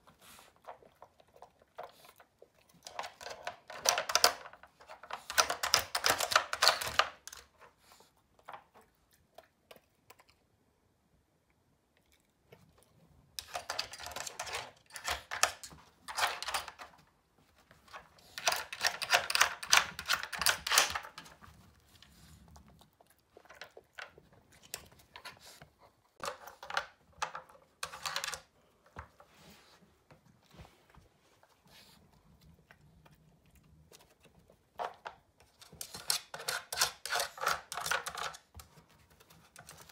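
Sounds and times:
plastic puzzle toy clicking: 18.4 - 21.2.

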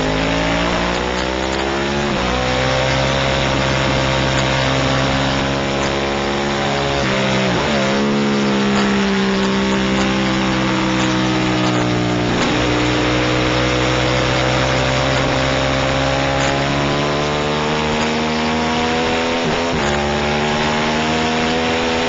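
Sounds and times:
racing motorcycle engine: 0.0 - 22.0.

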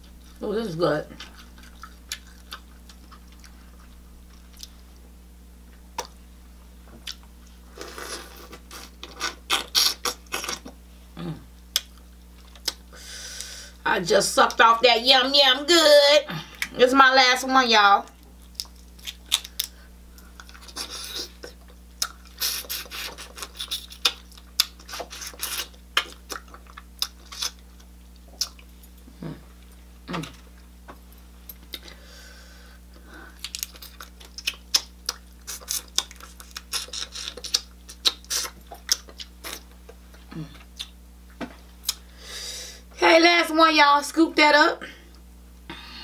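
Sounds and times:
wet smacking and chewing: 1.2 - 4.8, 5.9 - 6.2, 11.7 - 12.9, 18.1 - 32.0, 33.4 - 42.0.

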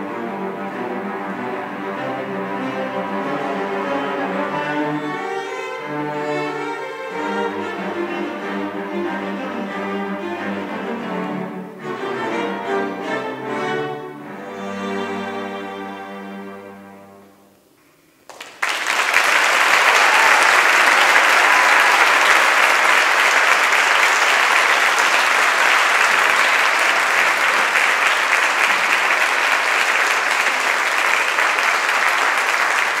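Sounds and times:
cello ensemble chord: 0.0 - 17.5
audience applause: 18.3 - 33.0.

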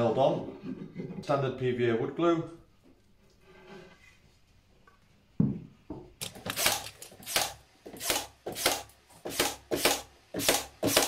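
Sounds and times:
nail gun shots: 6.2 - 11.0.

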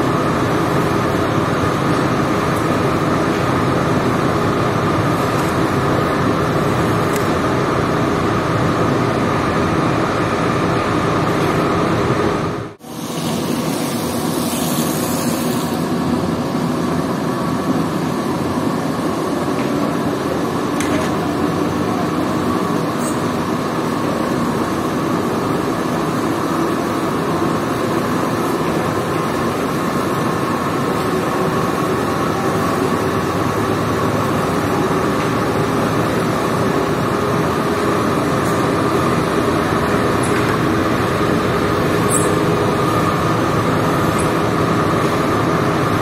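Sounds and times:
carpet washing machine running: 0.0 - 46.0
water spraying on rug: 12.9 - 15.8.

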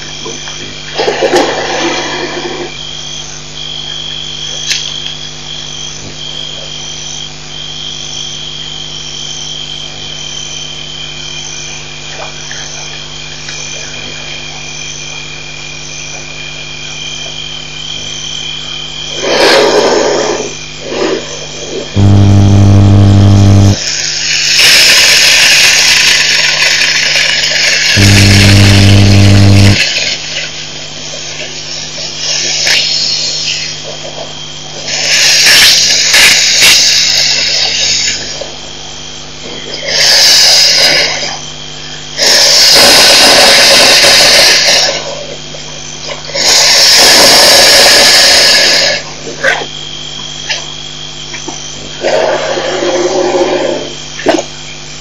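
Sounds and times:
loud low hum: 22.0 - 23.8, 28.0 - 29.8
hissing rush: 22.0 - 30.2, 46.4 - 49.0.

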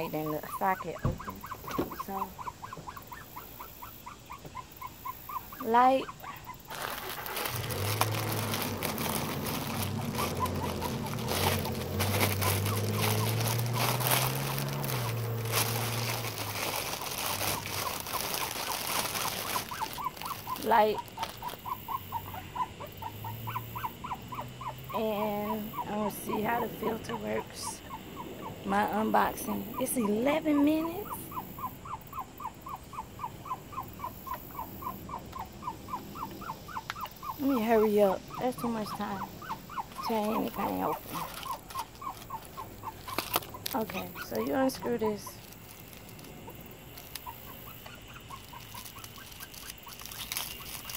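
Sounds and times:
puppy whimpering: 4.1 - 13.5, 15.5 - 28.6, 29.5 - 45.4
plastic wrapping crinkling: 6.7 - 22.2, 39.8 - 50.9.

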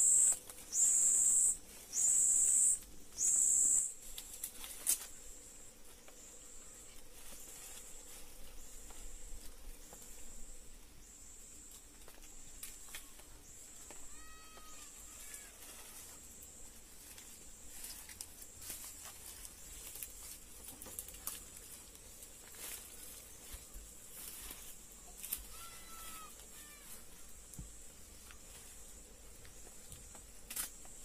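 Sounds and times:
high chirp: 0.0 - 3.9
dry leaves rustling: 4.0 - 5.4, 6.8 - 10.3, 12.0 - 29.0
animal call: 25.4 - 27.0.

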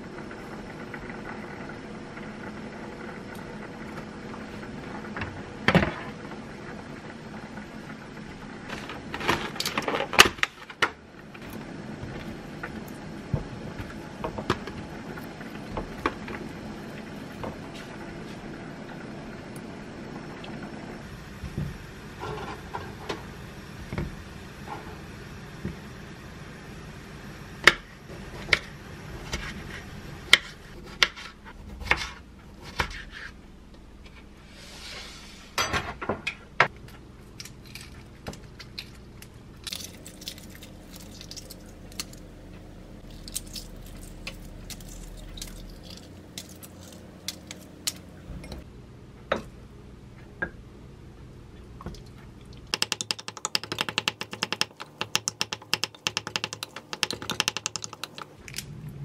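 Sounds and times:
eggshell crackling: 37.4 - 48.6, 51.9 - 58.6.

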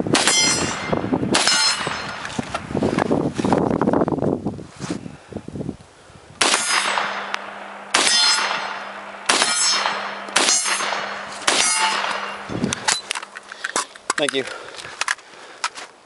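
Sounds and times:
rifle shots: 0.1 - 2.4, 6.4 - 13.5
metallic ringing: 0.2 - 2.5, 6.4 - 13.6.

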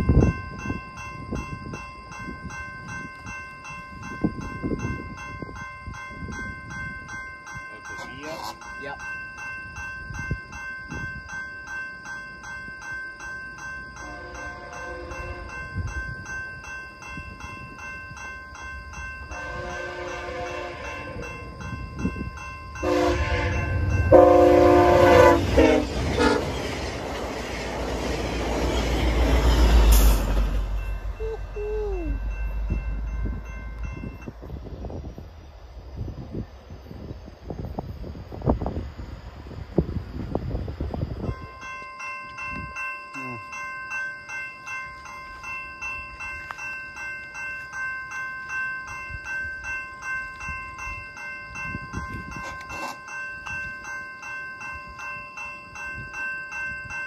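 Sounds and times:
crossing warning bell ringing: 0.0 - 57.0
train rumbling past: 13.8 - 41.8
train air horn blasts: 14.0 - 15.6, 19.3 - 21.2, 22.8 - 26.5.

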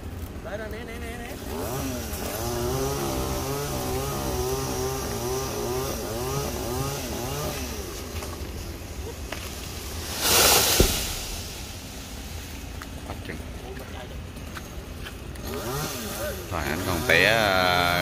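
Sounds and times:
chainsaw cutting wood: 1.2 - 8.5, 10.0 - 11.6, 15.4 - 18.0
tree limb crashing down: 9.2 - 12.3.

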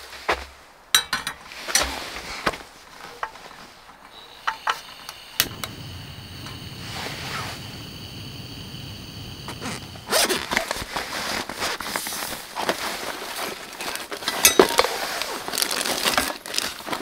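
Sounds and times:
cookware clicks and knocks: 1.0 - 1.5
steady hiss: 3.6 - 13.1.

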